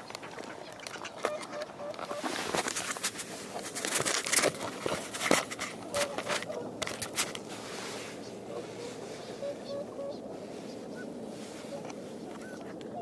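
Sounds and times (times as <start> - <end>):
faint waterfowl calls: 0.2 - 2.6, 5.8 - 6.8, 7.9 - 13.0
footsteps crunching on snow: 2.0 - 9.2.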